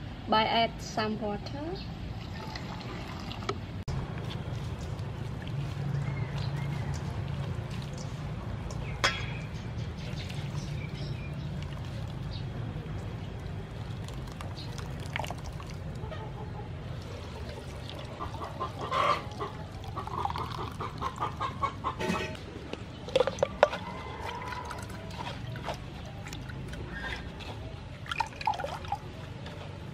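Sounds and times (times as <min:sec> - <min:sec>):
hands squeezing wet coconut: 0:04.2 - 0:08.9, 0:09.9 - 0:16.2, 0:16.9 - 0:21.6, 0:22.9 - 0:29.9
water pouring into bowl: 0:13.4 - 0:16.0, 0:28.0 - 0:29.1
milk pouring through strainer: 0:13.7 - 0:16.0.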